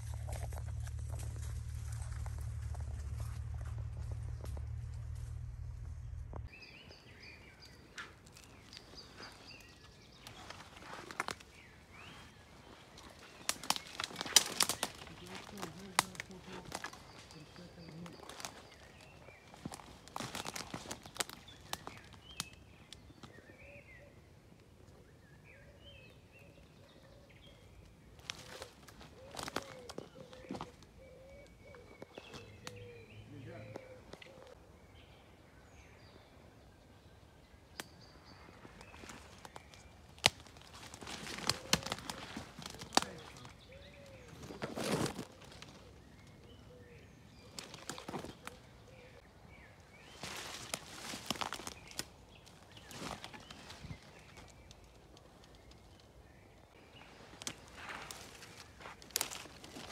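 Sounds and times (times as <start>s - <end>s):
footsteps on twigs and leaves: 0.0s - 23.5s, 28.0s - 33.0s, 37.8s - 49.3s, 49.9s - 56.1s, 56.7s - 59.9s
birds chirping and trilling: 0.0s - 59.9s
soft repeated bird call: 28.4s - 34.7s.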